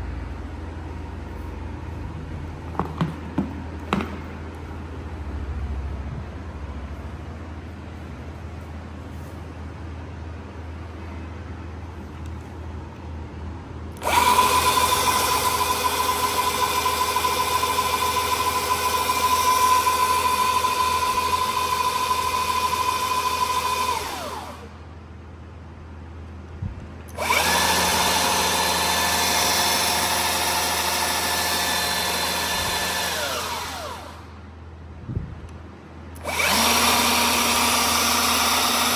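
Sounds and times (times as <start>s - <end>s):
belt sander running: 14.0s - 24.8s, 27.1s - 34.4s, 36.2s - 38.9s.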